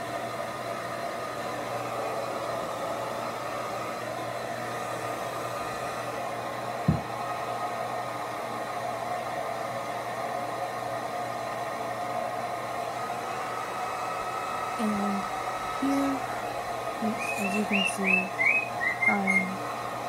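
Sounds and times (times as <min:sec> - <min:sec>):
hair dryer blowing: 0:00.0 - 0:20.0
sharp knock: 0:06.9 - 0:07.1.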